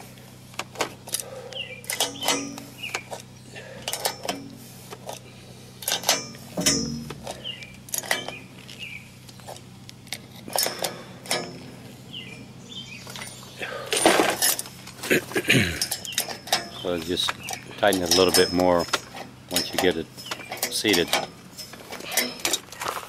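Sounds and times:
scraping metal rattle: 0:00.7 - 0:23.0
wrench clinking on metal bolt: 0:01.1 - 0:03.1, 0:03.8 - 0:04.5, 0:05.8 - 0:08.4, 0:10.3 - 0:11.7, 0:15.8 - 0:22.8.

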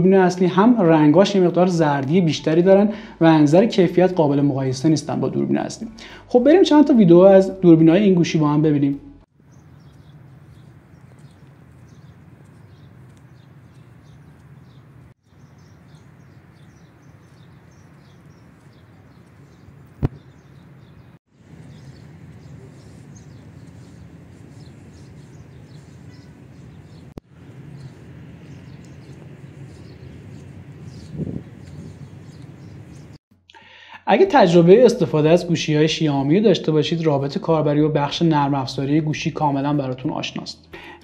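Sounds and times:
small birds chirping: 0:09.4 - 0:33.2
steady low rumble: 0:21.4 - 0:33.2.

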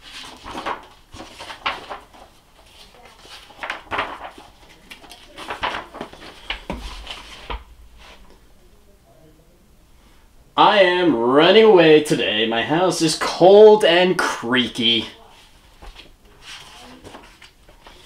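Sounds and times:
paper pages rustling and flapping: 0:00.0 - 0:08.2, 0:15.1 - 0:18.0.

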